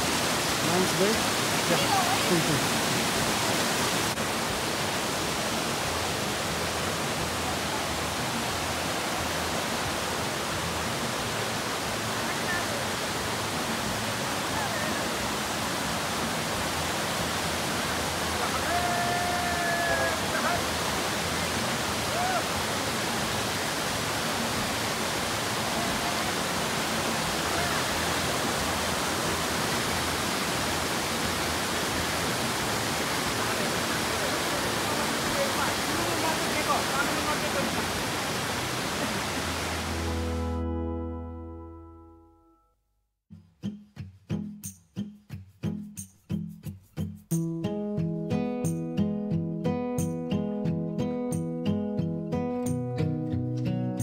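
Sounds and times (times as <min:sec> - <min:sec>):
creek rushing over rocks: 0:00.0 - 0:40.5.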